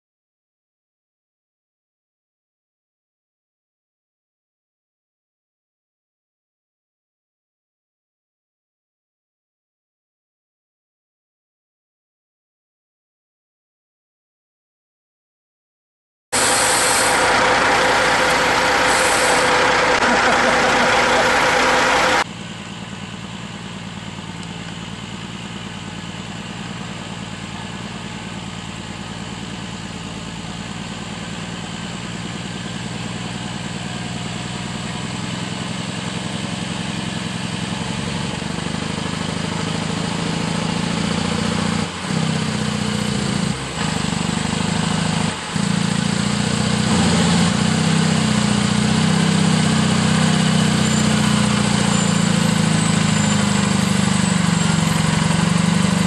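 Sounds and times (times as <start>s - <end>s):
truck engine running: 16.4s - 56.0s.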